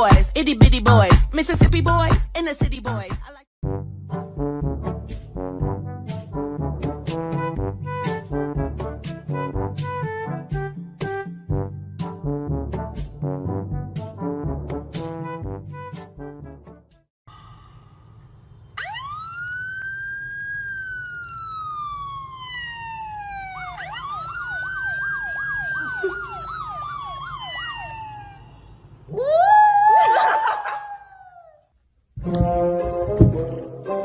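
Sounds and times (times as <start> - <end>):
siren wailing: 18.7 - 31.5.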